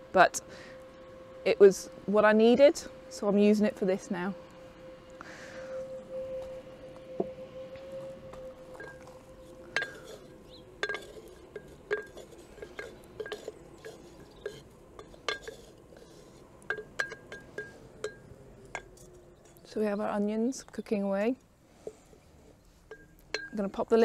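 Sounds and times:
wooden spoon scraping earthenware jar: 8.2 - 19.7.

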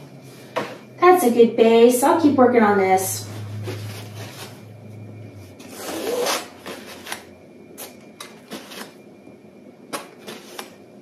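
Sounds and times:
palette knife scraping canvas: 5.6 - 7.0.

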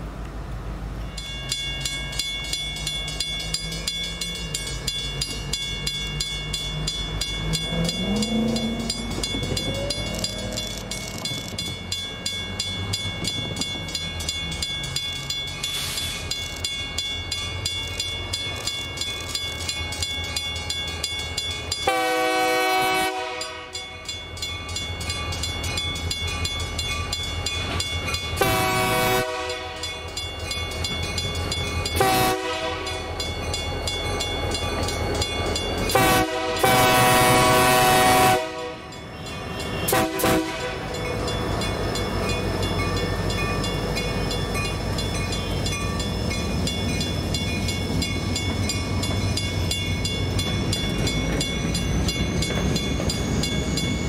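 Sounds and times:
train rumble: 0.0 - 54.0
train air horn blasts: 21.9 - 23.8, 28.4 - 29.9, 32.0 - 33.0, 35.9 - 38.9, 39.8 - 41.0.

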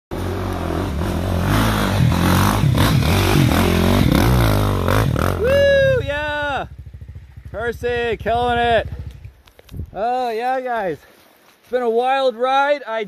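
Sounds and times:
dirt bike engine revving: 0.1 - 9.2.

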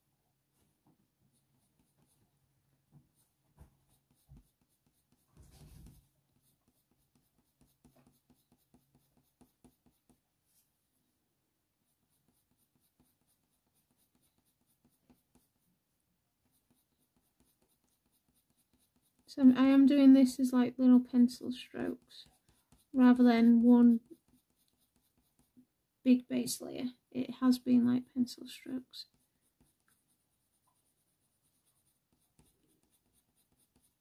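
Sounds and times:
coloured pencil scratching paper: 1.3 - 2.2, 3.1 - 10.7, 11.8 - 15.7, 16.4 - 25.6, 28.2 - 34.0.

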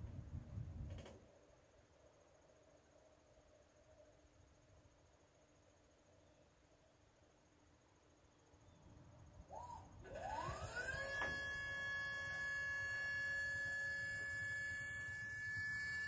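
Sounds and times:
hydraulic pump whine: 9.5 - 16.0.

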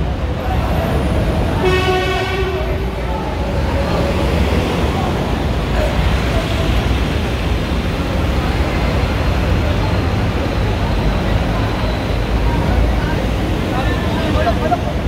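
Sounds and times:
dump truck engine rumble: 0.0 - 15.0
heavy street traffic: 0.0 - 15.0
voices: 0.0 - 15.0
vehicle horn: 1.6 - 2.8.

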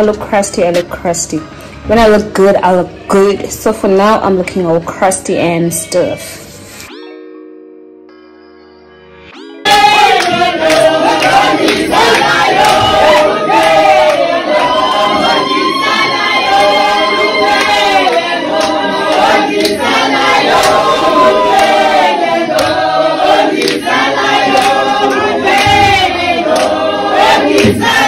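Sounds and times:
group singing in chorus: 9.5 - 28.0.

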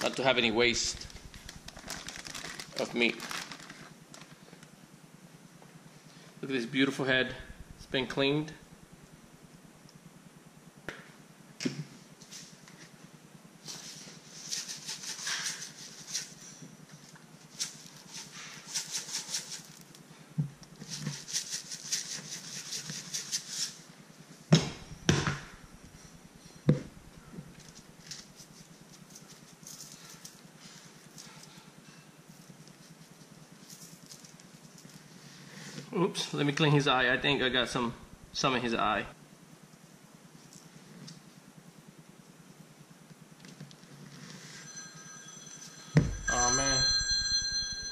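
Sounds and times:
aluminium foil crinkling: 0.0 - 4.4
dull thumps: 46.0 - 46.3.

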